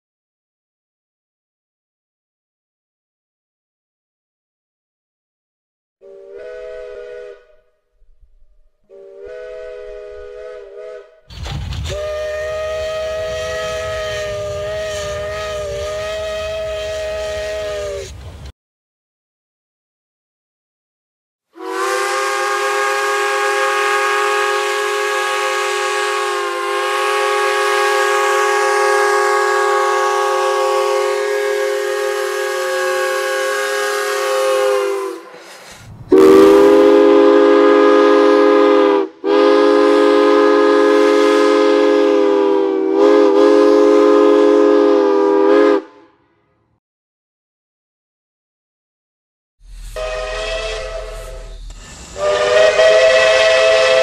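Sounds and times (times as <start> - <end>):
chime steam whistle blowing: 6.0 - 7.7, 8.9 - 11.2, 12.0 - 18.2, 21.6 - 46.0, 49.7 - 54.0
steam hissing: 12.0 - 18.2, 49.6 - 54.0.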